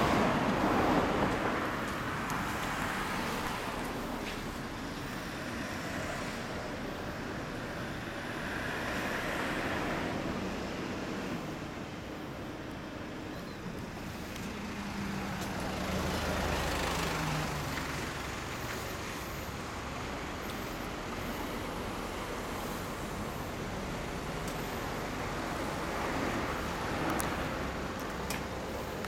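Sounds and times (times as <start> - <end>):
steady traffic hum: 0.0 - 29.0
vehicle passing by: 14.2 - 29.0.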